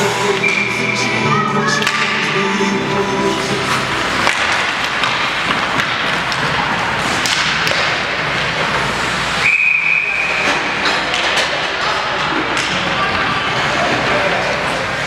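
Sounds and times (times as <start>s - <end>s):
sticks and puck clacking: 0.1s - 0.9s, 1.7s - 2.4s, 3.4s - 9.4s, 10.1s - 15.0s
skates scraping on ice: 3.3s - 9.4s
referee's whistle: 9.4s - 10.5s.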